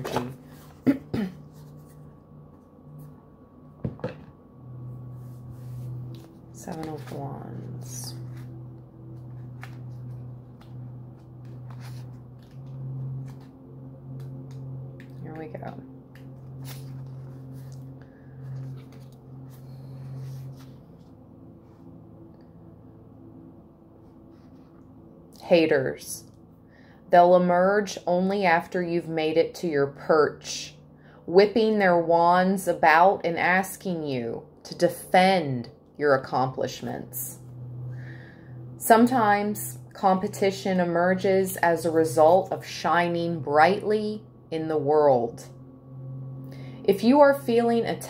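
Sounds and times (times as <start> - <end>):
cards being handled: 0.0 - 0.9, 9.2 - 13.6, 16.2 - 20.7
faint steady hum: 0.0 - 48.0.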